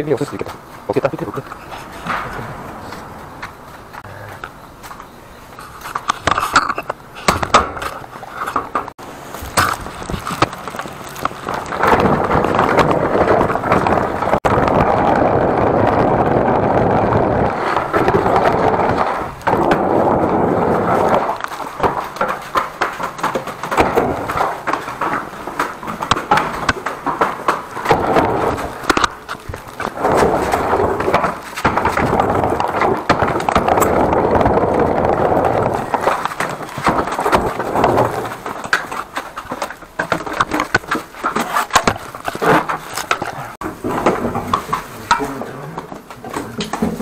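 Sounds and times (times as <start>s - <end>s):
footsteps: 0.0s - 14.5s.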